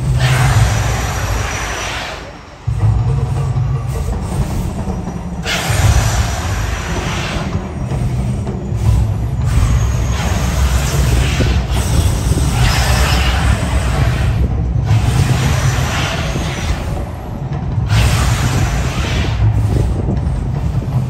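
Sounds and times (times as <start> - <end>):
gas flame jets whooshing: 0.0 - 21.0
rumbling soundtrack over loudspeakers: 0.0 - 21.0.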